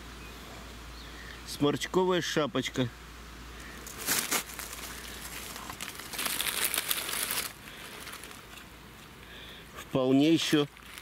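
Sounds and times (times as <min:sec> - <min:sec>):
leaf litter rustling and crackling: 0:03.6 - 0:09.2, 0:10.0 - 0:11.0.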